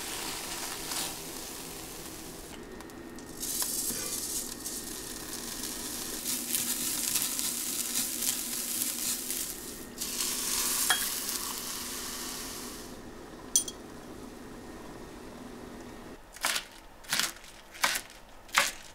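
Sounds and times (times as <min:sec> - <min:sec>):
rice sizzling in a pan: 0:00.0 - 0:15.0
water poured into hot pan: 0:03.4 - 0:12.9.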